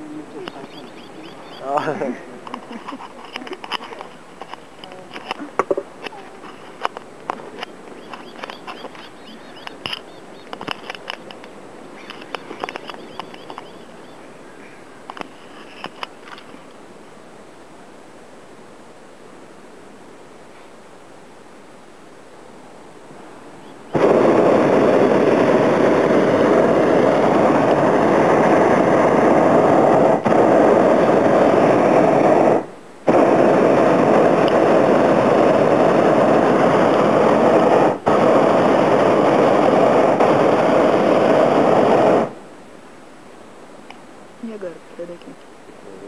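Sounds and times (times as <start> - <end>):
propane burner blasting: 23.9 - 42.5.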